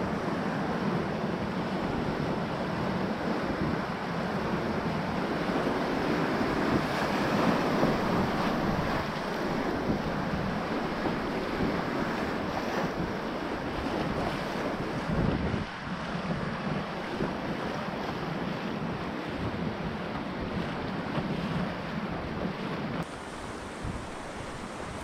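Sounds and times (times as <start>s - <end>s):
waves splashing over bow: 0.0s - 25.0s
wind buffeting microphone: 0.9s - 25.0s
whitewater rushing: 3.4s - 18.0s, 23.0s - 25.0s.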